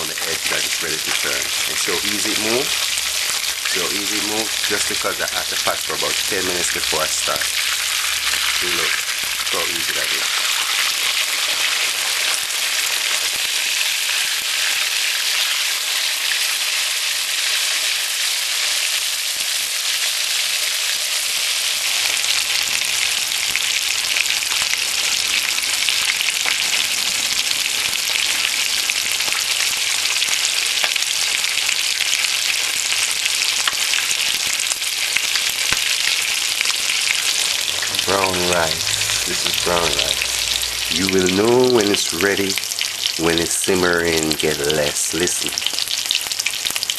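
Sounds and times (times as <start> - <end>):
hot oil sizzling and crackling: 0.0 - 46.9.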